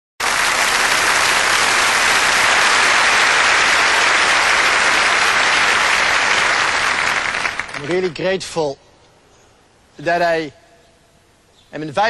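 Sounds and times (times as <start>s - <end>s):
large audience applauding: 0.2s - 8.2s.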